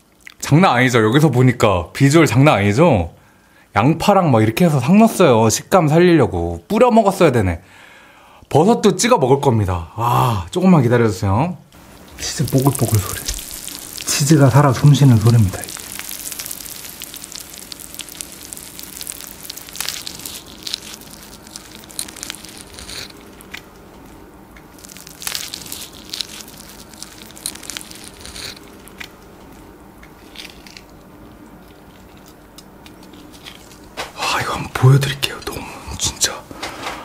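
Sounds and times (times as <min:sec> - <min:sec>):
melted cheese bubbling and crackling: 0:11.8 - 0:34.1.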